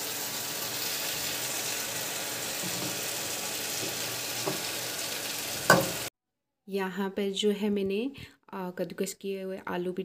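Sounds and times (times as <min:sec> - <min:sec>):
oil sizzling in a wok: 0:00.0 - 0:06.1.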